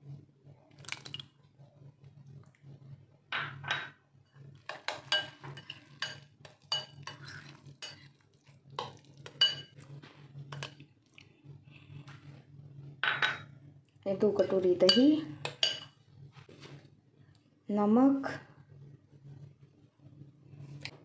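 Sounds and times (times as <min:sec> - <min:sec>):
spoon clinking on glass bowl: 0:04.7 - 0:08.0, 0:08.8 - 0:09.8, 0:14.8 - 0:15.9.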